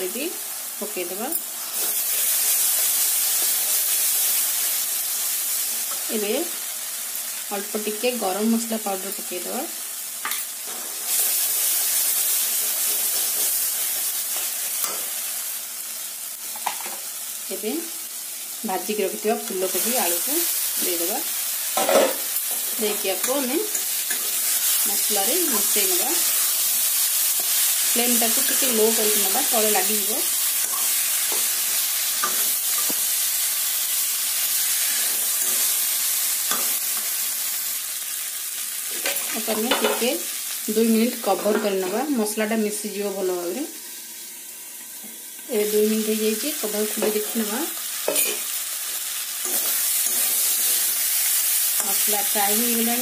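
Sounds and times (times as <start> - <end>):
paste sizzling in hot oil: 0.0 - 42.5, 43.2 - 53.0
metal spatula scraping a pan: 48.0 - 48.6, 49.4 - 51.1.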